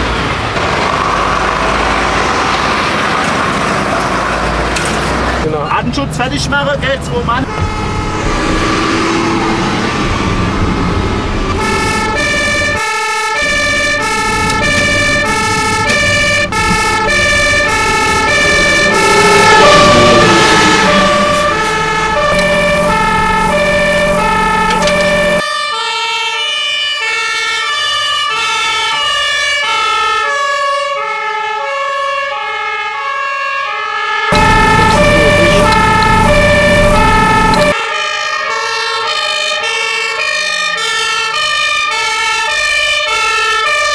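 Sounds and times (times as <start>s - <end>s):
truck engine rumble: 0.0s - 25.4s, 34.3s - 37.8s
two-tone fire engine siren: 7.2s - 43.9s.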